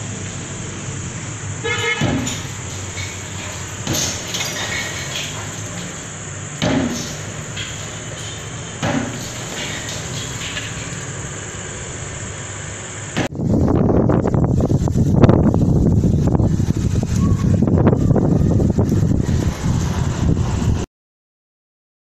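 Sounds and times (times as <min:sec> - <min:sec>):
hand tool striking concrete: 0:01.8 - 0:11.1.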